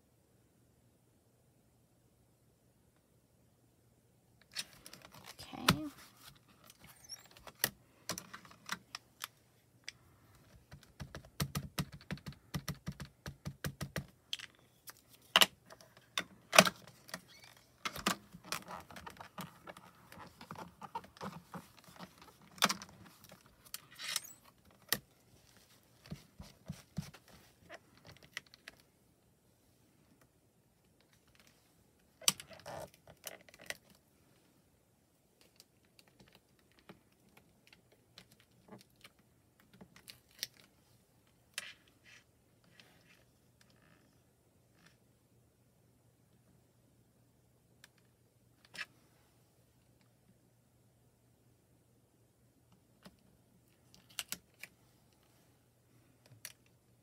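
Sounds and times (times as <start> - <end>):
lid opening and closing: 23.7 - 24.9.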